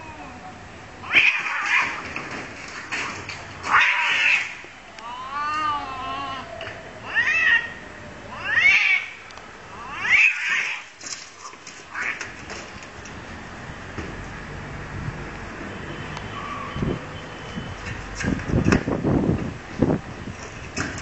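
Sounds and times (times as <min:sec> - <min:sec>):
cats fighting and yowling: 0:00.0 - 0:12.6.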